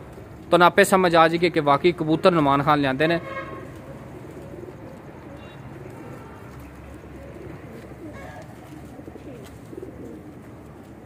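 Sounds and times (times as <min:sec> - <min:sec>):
pigeons cooing: 0:00.0 - 0:00.5, 0:03.5 - 0:11.0.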